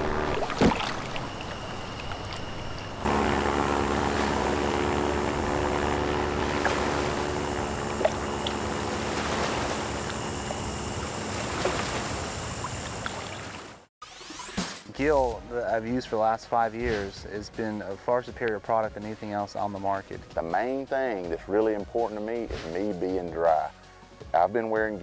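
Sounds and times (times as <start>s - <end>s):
propeller plane engine running: 0.0s - 13.9s.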